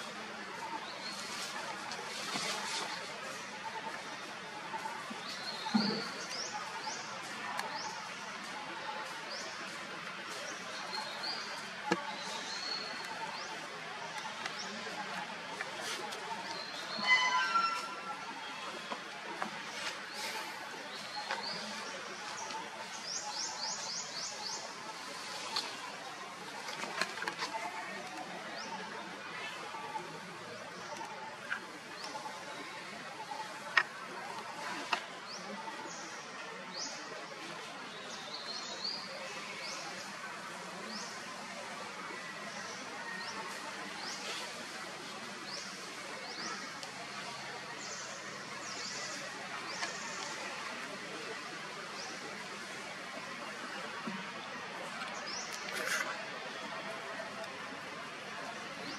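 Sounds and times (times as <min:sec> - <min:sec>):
birds chirping: 0:00.0 - 0:41.5
faint distant voices: 0:00.0 - 0:58.9
steady outdoor hiss: 0:00.0 - 0:58.9.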